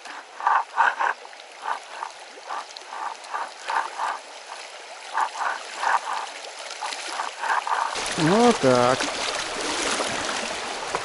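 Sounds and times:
river water rushing: 0:00.0 - 0:11.0
water splashing: 0:00.0 - 0:11.0.

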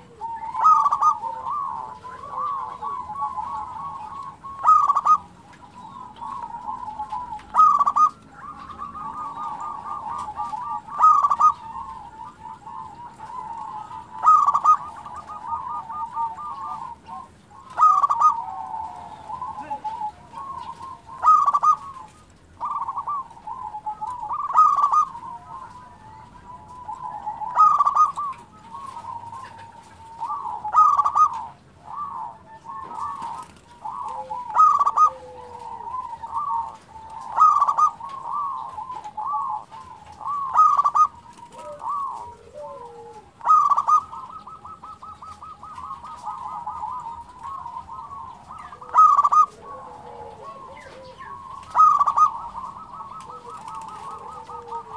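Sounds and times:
dove cooing: 0:00.0 - 0:54.9.

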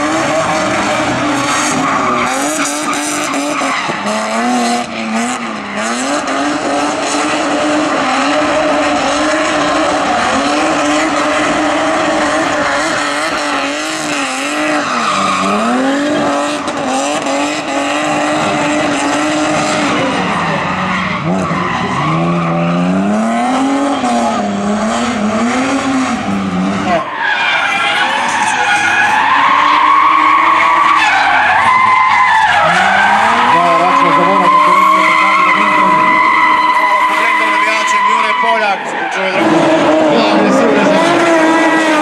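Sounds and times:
car engine at high revs: 0:00.0 - 0:42.0
tyre squeal: 0:26.9 - 0:42.0.

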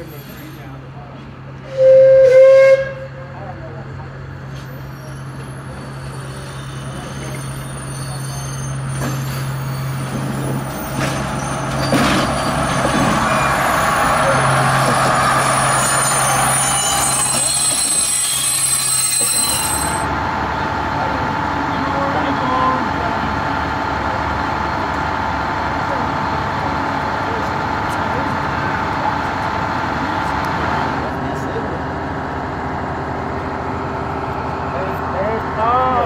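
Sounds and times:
diesel railcar engine drone: 0:00.0 - 0:36.0
train horn blast: 0:01.7 - 0:03.4
train wheel noise: 0:04.3 - 0:36.0.

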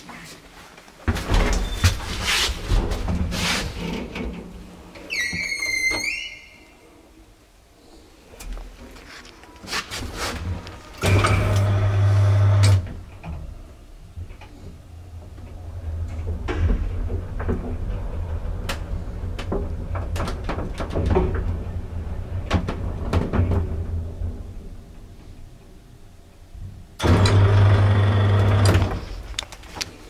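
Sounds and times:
loud electric hum: 0:11.0 - 0:12.9.

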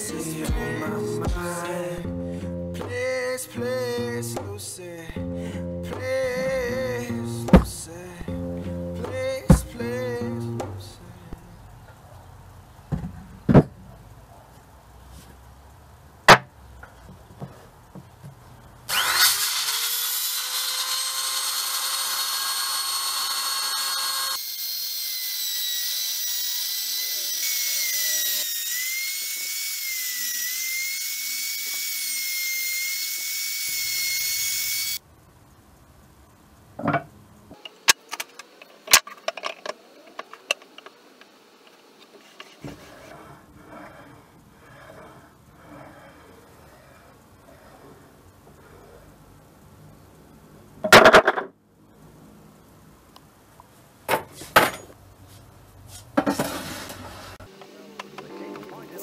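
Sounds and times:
power tool whining into wood: 0:18.9 - 0:35.0.

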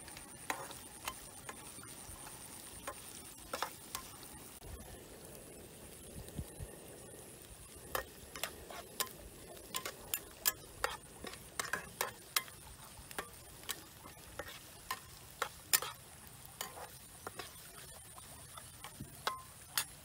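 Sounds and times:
metal spatula scraping frying pan: 0:00.4 - 0:04.2, 0:07.9 - 0:20.0.

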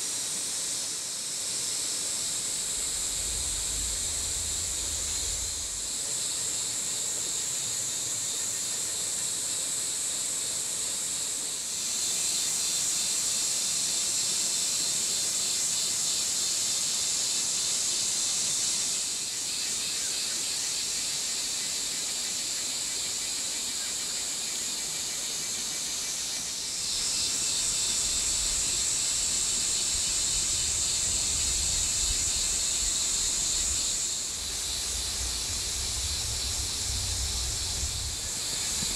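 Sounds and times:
high-pitched insect chorus: 0:00.0 - 0:38.9.

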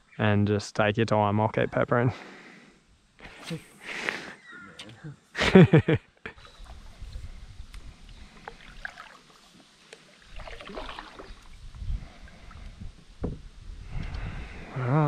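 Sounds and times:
water lapping at kayak hull: 0:06.4 - 0:13.2
low rumbling on microphone: 0:11.4 - 0:15.0.

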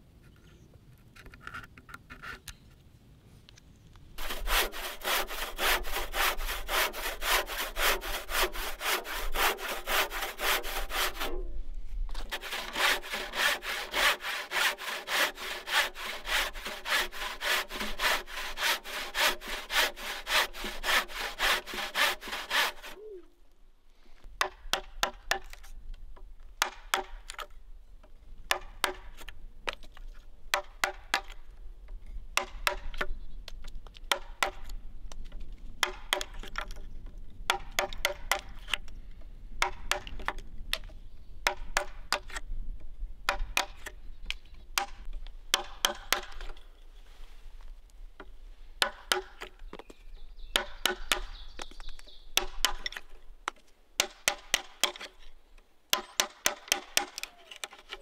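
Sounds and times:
handsaw cutting wood: 0:04.2 - 0:11.4, 0:12.2 - 0:23.0.

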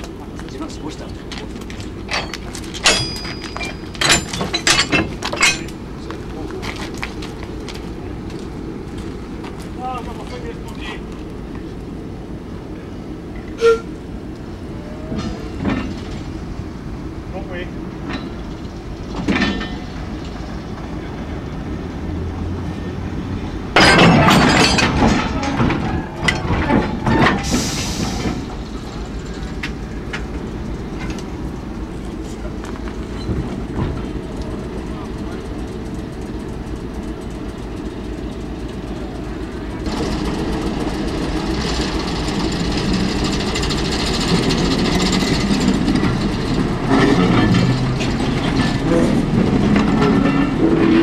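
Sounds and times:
metallic clanking of couplings: 0:00.0 - 0:11.0, 0:17.5 - 0:20.8, 0:23.7 - 0:31.4, 0:32.0 - 0:51.0
steady low rumble: 0:00.0 - 0:51.0
metallic clanks of coupling chain: 0:01.8 - 0:05.8, 0:19.1 - 0:19.9, 0:23.8 - 0:27.5.

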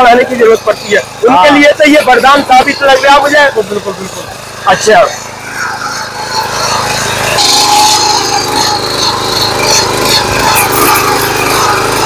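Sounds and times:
power weeder engine running: 0:00.0 - 0:12.0.

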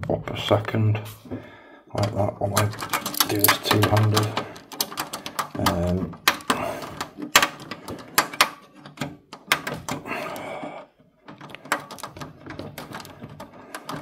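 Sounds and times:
screwdriver clicking and scraping metal: 0:02.6 - 0:10.0.

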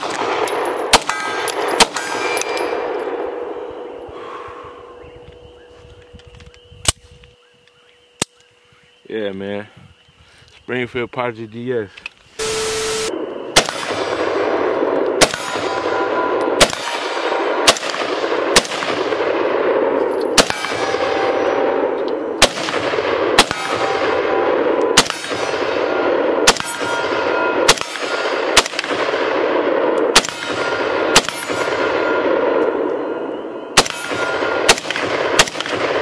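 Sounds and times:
rifle shots: 0:00.0 - 0:03.3, 0:12.8 - 0:32.9, 0:33.7 - 0:36.0
loud steady noise: 0:12.4 - 0:36.0.

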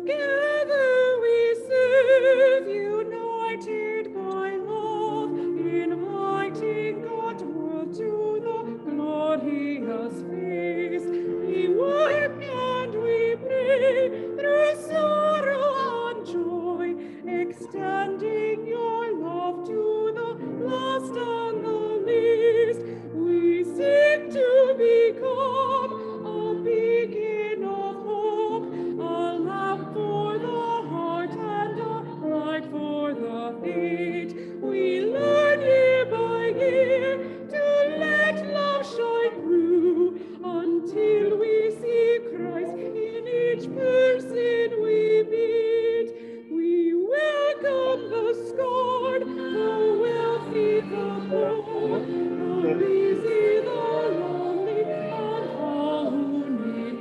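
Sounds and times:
woman singing a hymn: 0:00.0 - 0:57.0
sustained instrumental accompaniment: 0:47.4 - 0:57.0.

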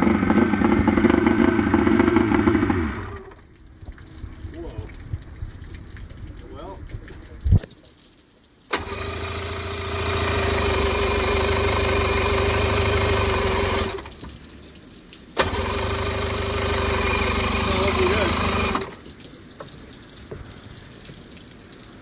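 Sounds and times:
outboard engine running: 0:00.0 - 0:03.5, 0:08.7 - 0:14.1, 0:15.4 - 0:19.0.

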